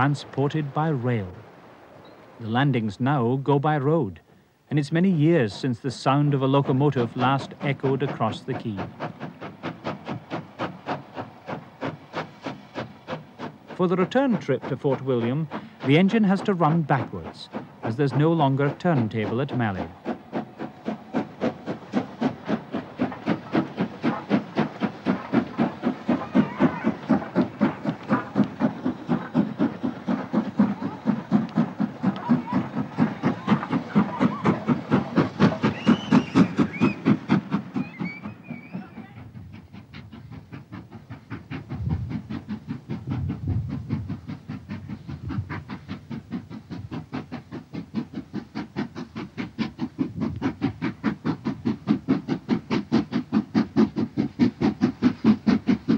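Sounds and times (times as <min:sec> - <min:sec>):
steam locomotive exhaust chuffing: 0:00.0 - 0:55.9.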